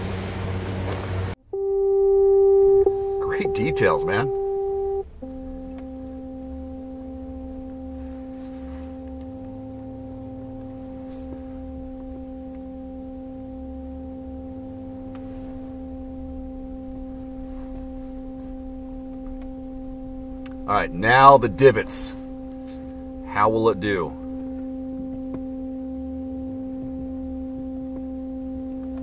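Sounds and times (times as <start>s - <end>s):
parking sensor continuous tone: 1.3s - 29.0s.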